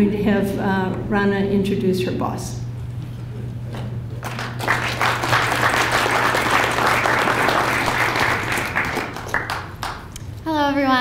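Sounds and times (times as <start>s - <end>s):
audience applauding: 4.2s - 10.2s.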